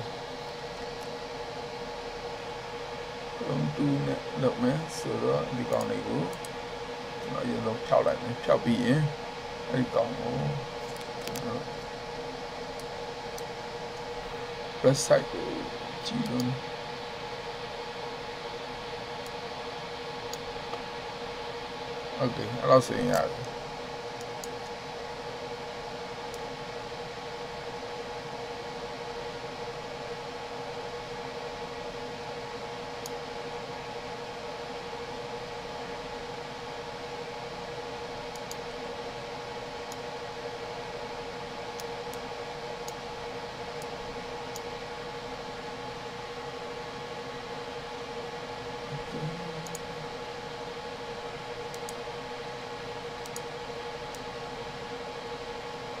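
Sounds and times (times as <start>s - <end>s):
constant hum: 0.0s - 56.0s
faint clicks: 38.3s - 38.6s, 51.7s - 52.0s.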